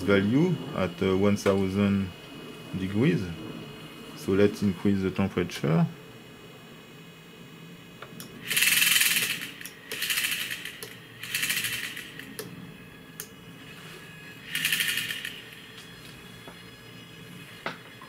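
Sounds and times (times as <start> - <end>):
servo motor whirring: 8.4 - 12.4, 13.6 - 16.4.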